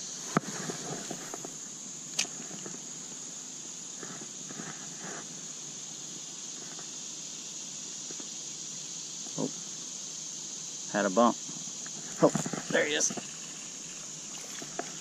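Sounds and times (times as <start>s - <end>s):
high insect drone: 0.0s - 15.0s
sharp click: 2.1s - 2.3s.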